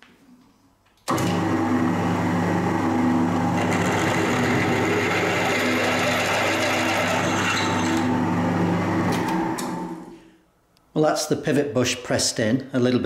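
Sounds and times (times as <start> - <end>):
drill cutting through steel: 1.1 - 8.4
drill motor hum: 1.1 - 10.1.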